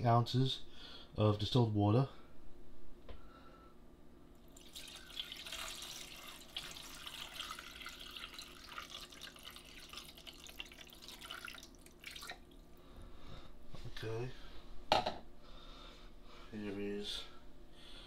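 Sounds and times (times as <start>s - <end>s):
water pouring and splashing: 4.5s - 12.7s.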